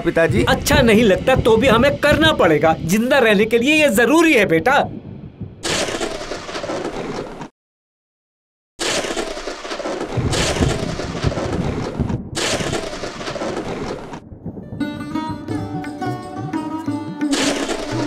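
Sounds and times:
heavy rain rushing: 0.0 - 7.2, 9.6 - 16.5, 17.3 - 18.0
deep thunder rumble: 0.0 - 7.3, 10.0 - 16.5
thunder cracks: 0.0 - 7.4, 8.8 - 18.0.

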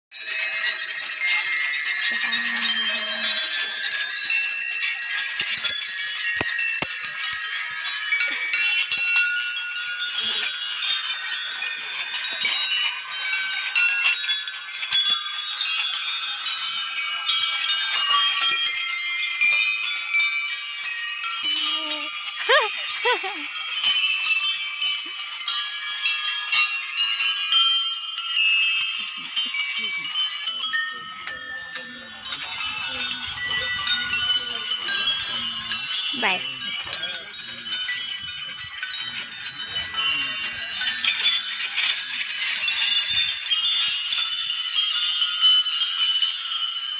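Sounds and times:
metal bells ringing: 0.1 - 46.9.

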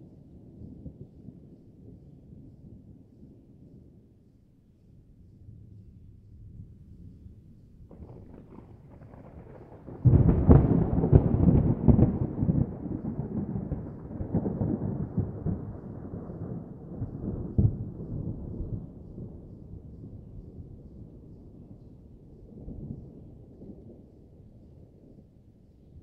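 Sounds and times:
thunder crack and rumble: 7.9 - 25.0.

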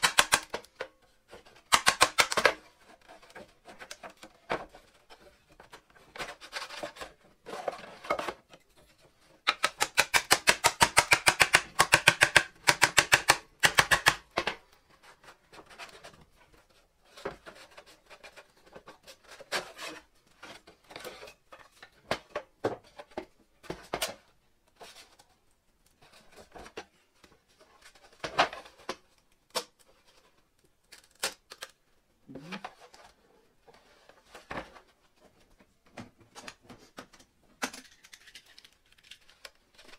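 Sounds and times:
wooden pieces knocking and scraping: 0.0 - 25.2.

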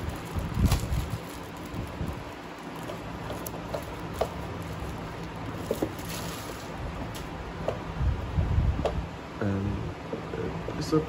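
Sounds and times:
plastic packaging crinkling: 0.0 - 7.3.

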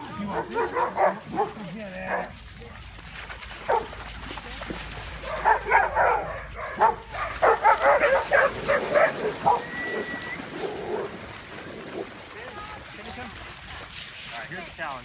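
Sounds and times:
dog barking and yipping: 0.2 - 2.3, 3.7 - 3.9, 5.2 - 10.1.

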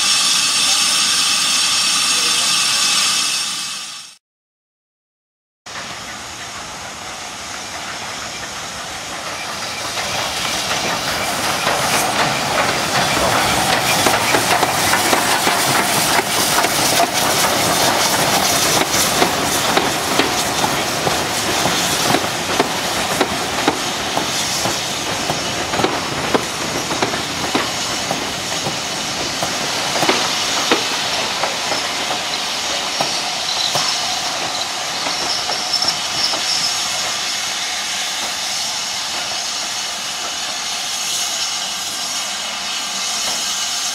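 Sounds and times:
steam hiss: 0.0 - 4.2, 5.7 - 43.9
steam train passing: 0.0 - 4.2, 5.7 - 43.9
wheels clicking over rail joints: 8.3 - 37.2.

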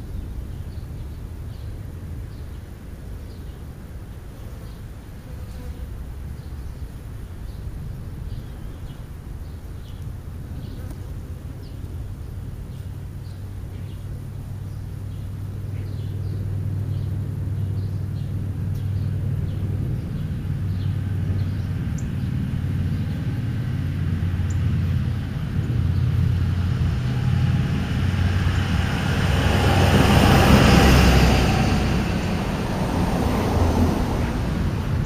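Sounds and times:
steady low hum: 0.0 - 35.0
car passing: 10.1 - 35.0.

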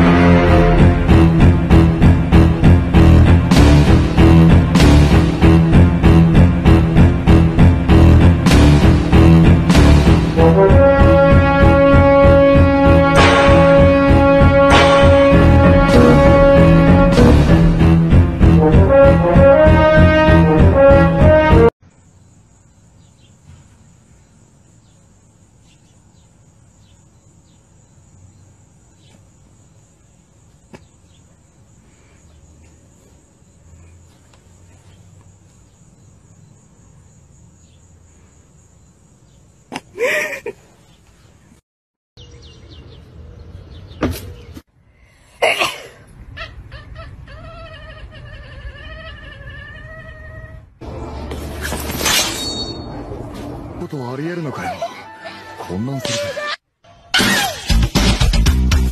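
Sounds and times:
cat yowling: 46.4 - 50.7.

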